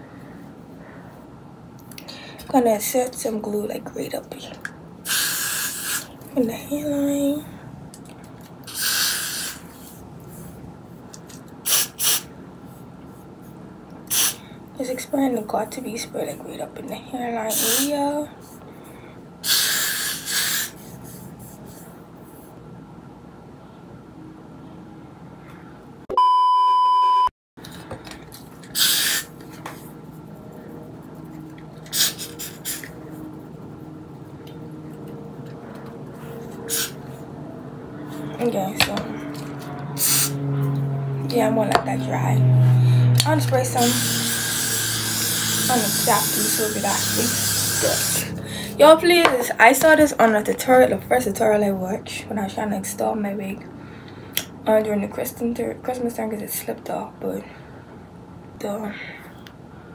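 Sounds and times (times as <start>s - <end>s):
aerosol spray can hissing: 5.1s - 6.1s, 8.7s - 9.6s, 11.7s - 12.3s, 14.1s - 14.4s, 17.5s - 17.9s, 19.5s - 20.7s, 28.7s - 29.3s, 31.9s - 32.9s, 36.7s - 37.0s, 40.0s - 40.4s, 43.7s - 48.4s.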